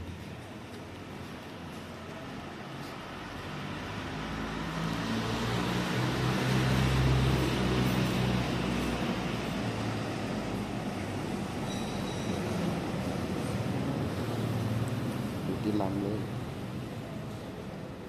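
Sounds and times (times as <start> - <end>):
vehicle engine passing by: 2.9 - 11.6.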